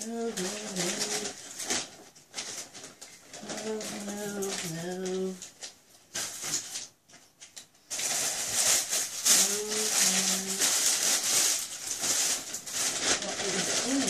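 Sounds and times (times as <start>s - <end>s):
person humming: 0.0s - 1.4s, 3.4s - 5.4s, 9.3s - 10.7s
plastic bag rustling: 0.0s - 14.0s.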